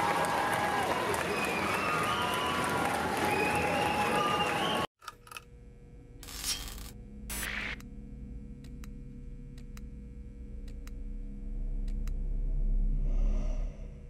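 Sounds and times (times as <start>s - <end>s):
low electronic drone: 5.1s - 14.0s.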